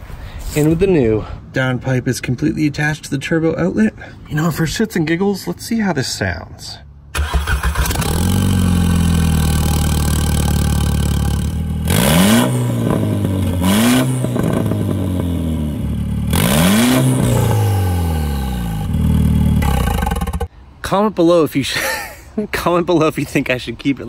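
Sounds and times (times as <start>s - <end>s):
car engine idling and revving: 7.2s - 20.5s.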